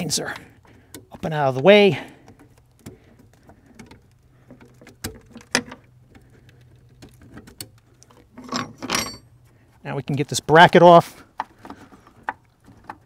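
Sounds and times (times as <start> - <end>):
light clicks and taps on metal: 0.0 - 10.3.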